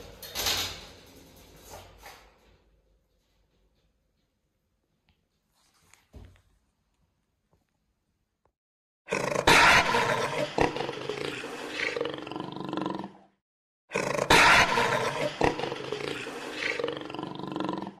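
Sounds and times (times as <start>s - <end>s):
big cat roaring: 9.1s - 18.0s.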